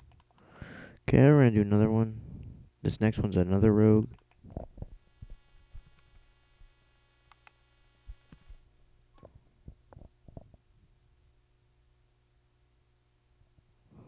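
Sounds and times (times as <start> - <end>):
computer mouse clicking: 0.0 - 0.4, 4.1 - 4.4, 5.8 - 6.2, 7.3 - 7.6, 8.3 - 8.6
low electrical hum: 0.0 - 14.0.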